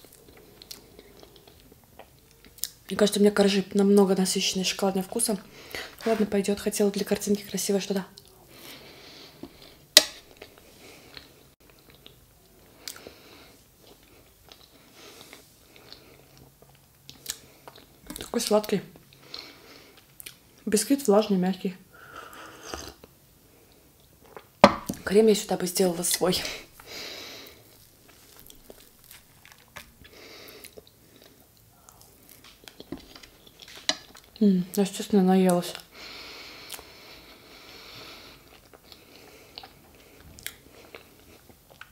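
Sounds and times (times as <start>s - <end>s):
person chewing cake: 0.0s - 2.9s, 8.1s - 18.4s, 19.0s - 20.6s, 22.2s - 25.0s, 26.6s - 34.4s, 36.6s - 41.9s.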